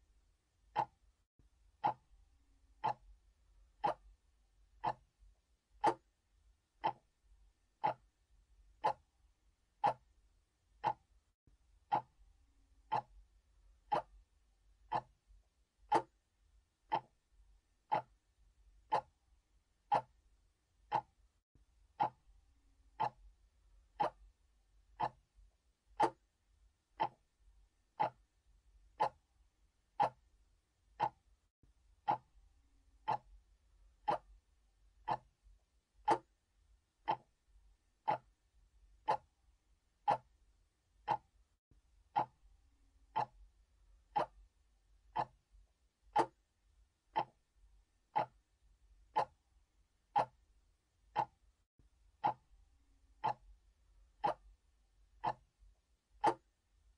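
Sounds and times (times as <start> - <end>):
clock ticking: 0.6 - 1.0, 1.8 - 2.1, 2.7 - 4.2, 4.8 - 5.1, 5.7 - 6.1, 6.8 - 7.2, 7.8 - 9.1, 9.7 - 11.2, 11.8 - 12.2, 12.8 - 13.2, 13.8 - 14.3, 14.9 - 15.2, 15.8 - 16.2, 16.9 - 17.2, 17.8 - 18.2, 18.8 - 19.2, 19.8 - 20.2, 20.8 - 21.2, 21.9 - 22.3, 22.9 - 23.3, 23.9 - 24.4, 25.0 - 25.3, 26.0 - 26.3, 27.0 - 27.3, 28.0 - 28.3, 28.9 - 29.3, 29.9 - 30.3, 30.9 - 31.3, 32.0 - 32.4, 33.0 - 33.4, 34.0 - 34.4, 35.0 - 35.4, 36.0 - 36.4, 37.0 - 37.4, 38.0 - 38.4, 39.0 - 39.4, 40.0 - 40.4, 41.0 - 41.4, 42.1 - 42.4, 43.1 - 43.5, 44.1 - 44.5, 45.1 - 45.4, 46.1 - 46.4, 47.1 - 47.5, 48.1 - 48.5, 49.1 - 49.4, 50.1 - 50.5, 51.1 - 51.4, 52.2 - 52.5, 53.2 - 53.6, 54.2 - 54.6, 55.2 - 55.5, 56.2 - 56.5.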